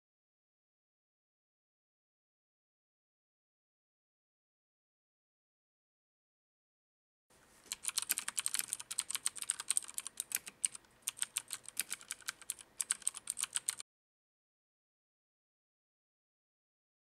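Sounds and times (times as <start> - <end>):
mechanical keyboard key clicks: 7.7 - 13.8.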